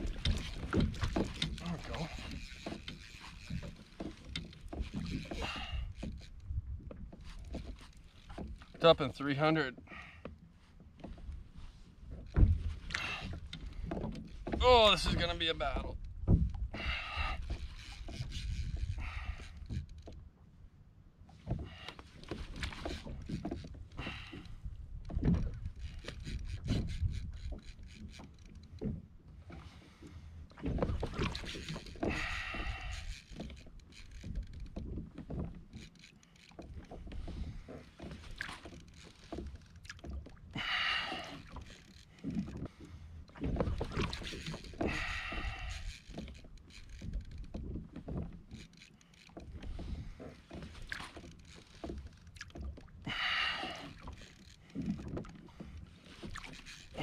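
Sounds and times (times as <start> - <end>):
fishing reel cranking: 0.0 - 6.4, 16.9 - 20.2, 25.7 - 28.7, 31.2 - 36.6, 38.2 - 42.6, 44.1 - 47.6, 48.5 - 49.9, 50.5 - 55.2, 56.2 - 57.0
water moving against kayak: 0.0 - 57.0.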